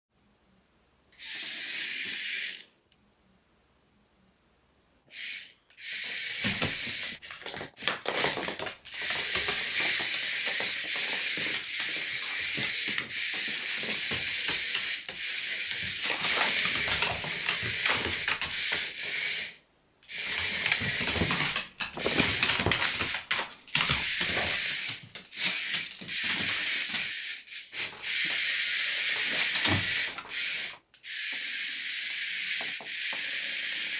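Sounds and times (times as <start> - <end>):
toy motors whirring: 1.2 - 2.8, 5.1 - 33.9
knocks and clicks on wooden floor: 8.2 - 18.9.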